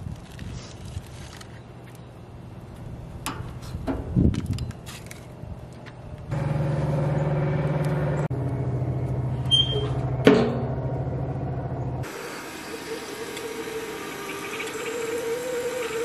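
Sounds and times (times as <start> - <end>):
engine running: 6.2 - 16.0.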